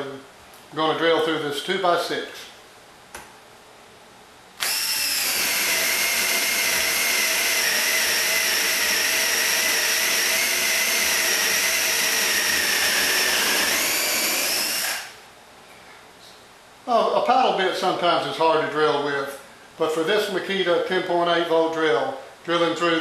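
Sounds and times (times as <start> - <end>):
cordless drill boring through wood: 4.6 - 15.2.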